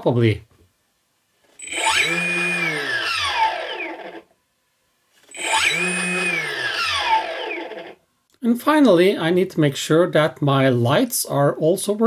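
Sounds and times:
electric motor whine: 1.6 - 4.3, 5.2 - 8.0.

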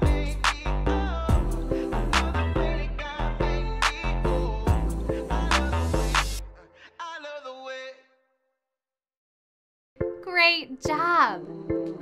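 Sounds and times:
upbeat children's worship song: 0.0 - 8.0.

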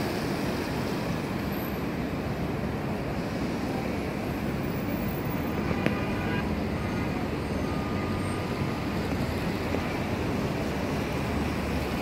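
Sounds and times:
city street traffic rumble: 0.0 - 12.0.

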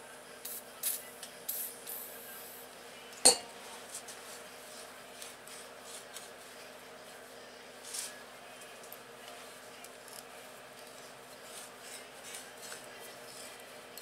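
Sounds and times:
aerosol can hissing bursts: 0.5 - 2.1.

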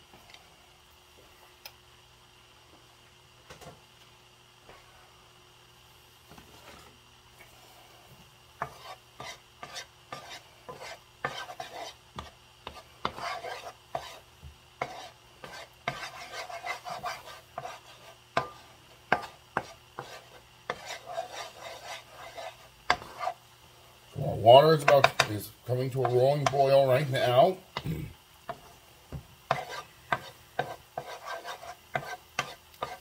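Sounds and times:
garlic frying in oil: 5.6 - 33.0
wooden spoon scraping a pan: 6.3 - 7.0, 8.6 - 23.4, 24.5 - 27.5, 28.5 - 28.8, 29.5 - 33.0.

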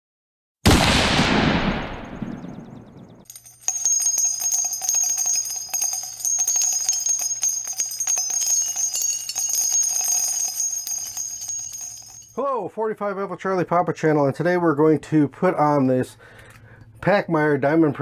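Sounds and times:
bells jingling: 3.2 - 12.4.

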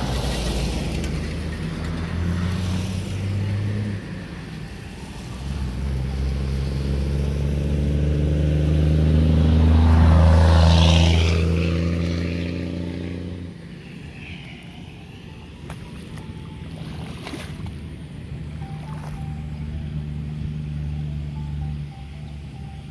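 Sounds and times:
vehicle engine running: 0.0 - 22.9.

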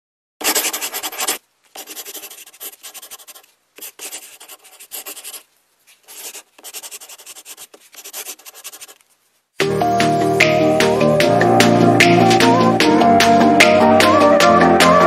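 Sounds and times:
coloured pencil scratching paper: 0.4 - 9.1.

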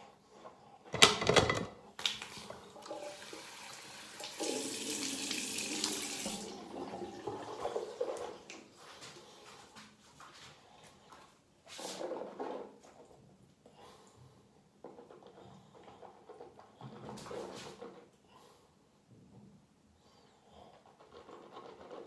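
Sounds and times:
tap water running into sink: 2.0 - 8.6.

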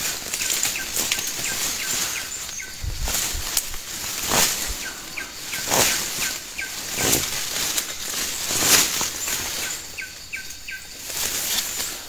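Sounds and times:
leaves and brush rustling: 0.0 - 12.0
small bird chirping: 0.2 - 3.3, 4.3 - 7.3, 8.0 - 11.1.

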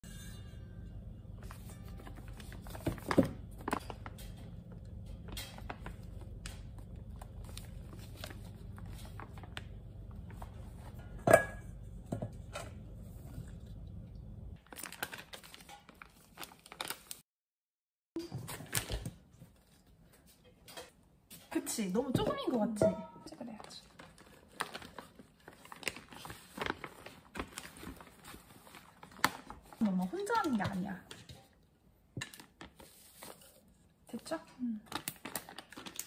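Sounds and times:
paper bag rustling and crinkling: 1.4 - 4.4, 5.4 - 11.0, 14.6 - 17.2, 23.4 - 30.9, 32.3 - 36.0.

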